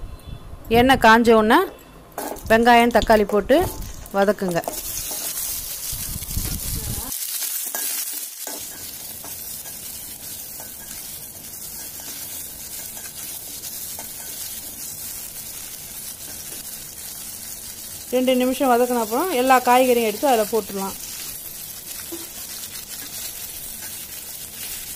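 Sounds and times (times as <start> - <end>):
onions and tomatoes sizzling in oil: 2.2 - 24.9
spatula stirring in pan: 4.7 - 6.0, 7.3 - 18.1, 21.0 - 24.9.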